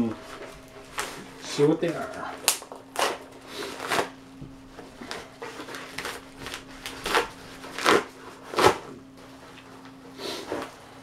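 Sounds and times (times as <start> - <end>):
paper envelope tearing: 2.4 - 4.1, 5.0 - 8.9.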